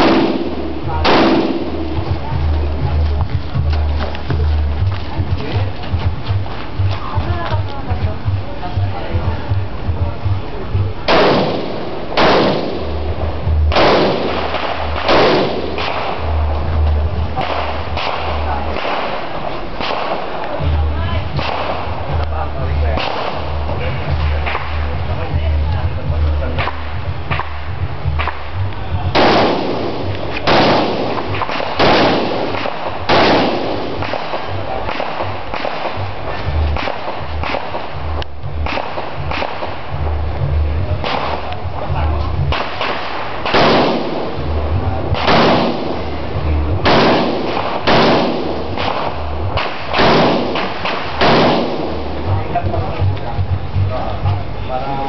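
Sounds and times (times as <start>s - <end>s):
rifle shots: 0.0s - 2.4s, 11.0s - 16.4s, 17.4s - 20.6s, 21.3s - 22.1s, 22.8s - 24.7s, 26.6s - 40.0s, 41.0s - 41.6s, 42.4s - 52.4s
faint sharp cracks: 13.7s - 20.6s, 29.2s - 41.6s, 42.5s - 44.4s, 46.8s - 52.0s.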